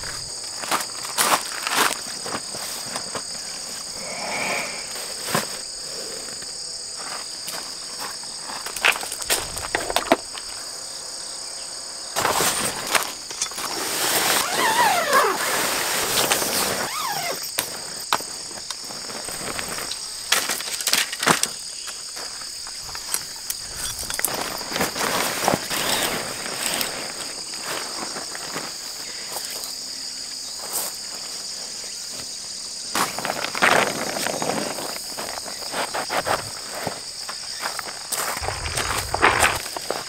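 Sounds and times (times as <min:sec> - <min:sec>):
insects calling high: 0:00.0 - 0:40.0
tent fabric rustling: 0:12.2 - 0:19.9, 0:23.6 - 0:28.8, 0:38.3 - 0:40.0.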